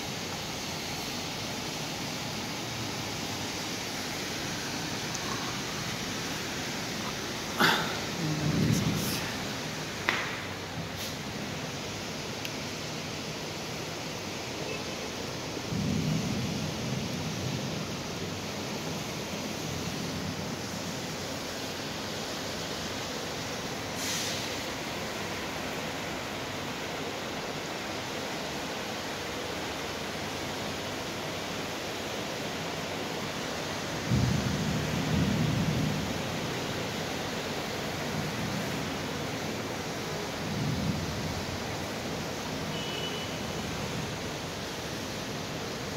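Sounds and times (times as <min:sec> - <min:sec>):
cars driving through floodwater: 0:00.0 - 0:15.9, 0:16.8 - 0:45.9
rain hissing: 0:00.0 - 0:45.9
tyres on wet street: 0:00.0 - 0:45.9
car driving through floodwater: 0:00.1 - 0:15.9.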